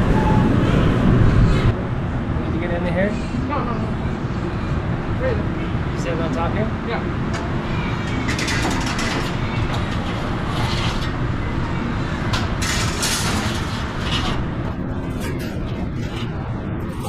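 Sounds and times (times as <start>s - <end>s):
oven racks scraping and clattering: 8.0s - 17.0s
low rumble: 13.0s - 17.0s.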